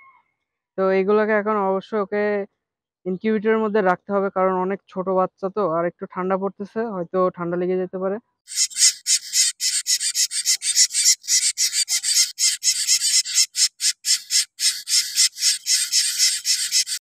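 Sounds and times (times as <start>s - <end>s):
nestling birds cheeping: 8.5s - 17.0s.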